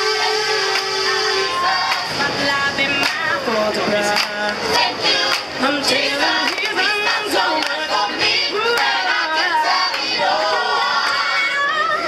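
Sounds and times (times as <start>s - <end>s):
choir singing: 0.0s - 3.7s, 4.6s - 12.0s
woman singing into microphone: 1.1s - 3.7s, 11.2s - 12.0s
hand claps: 1.9s - 2.1s, 3.0s - 3.2s, 4.1s - 4.5s, 5.3s - 5.5s, 6.4s - 6.8s.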